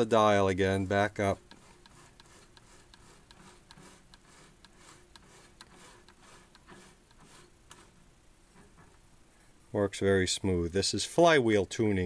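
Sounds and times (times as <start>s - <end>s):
tuning mechanism ticking faintly: 1.4s - 7.9s.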